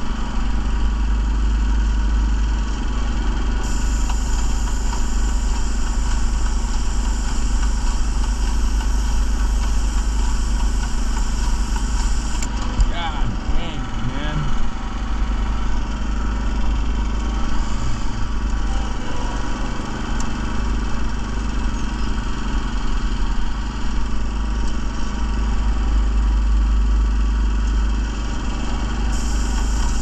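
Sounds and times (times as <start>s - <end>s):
small gas engine running: 0.0s - 30.0s.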